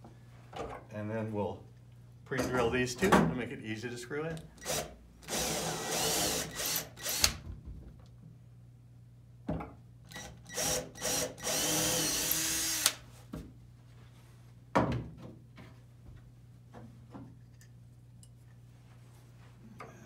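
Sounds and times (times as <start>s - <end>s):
cordless drill boring into wood: 4.6s - 7.4s, 10.1s - 13.0s.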